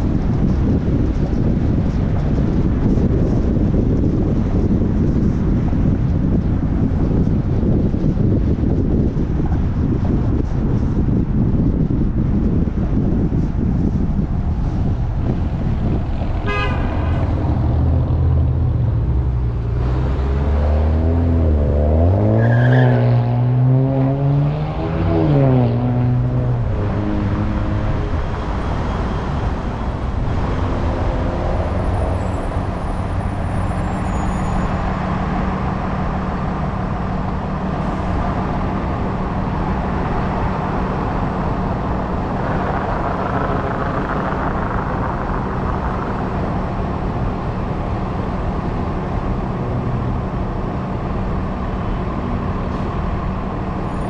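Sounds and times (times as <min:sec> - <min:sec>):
city traffic noise: 0:00.0 - 0:54.0
car engine revving and idling: 0:14.6 - 0:54.0
short car horn toot: 0:16.4 - 0:17.0.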